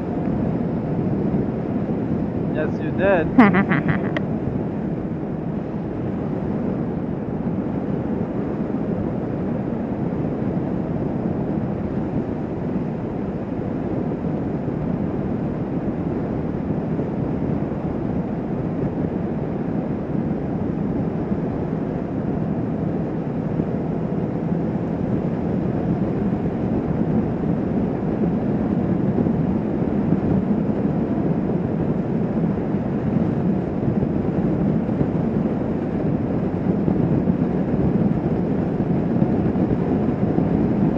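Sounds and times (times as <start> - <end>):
wind on microphone: 0.0 - 40.9.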